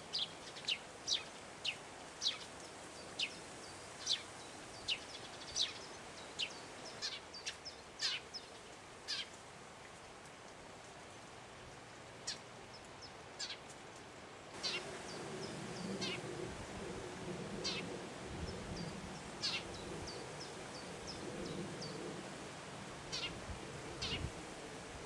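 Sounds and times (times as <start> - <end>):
owl chicks squeaky begging calls: 14.6 - 14.8.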